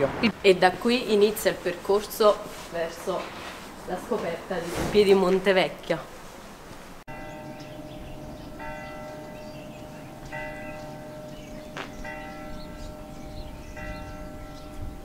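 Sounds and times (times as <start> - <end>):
bell tolling: 7.1 - 15.0.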